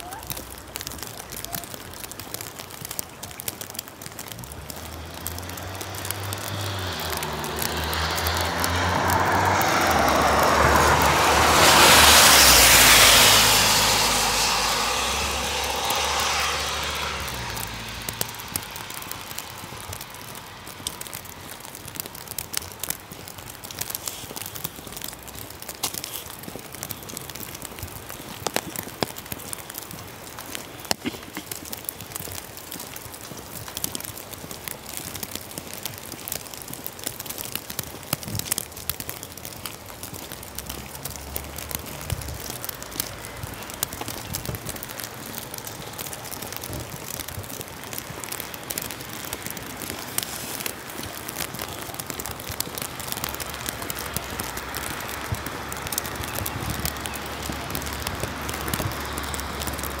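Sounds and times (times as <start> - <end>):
rain pattering: 0.0 - 60.0
tyres hissing on wet road: 0.0 - 60.0
vehicle engine passing: 4.3 - 23.0, 40.4 - 60.0.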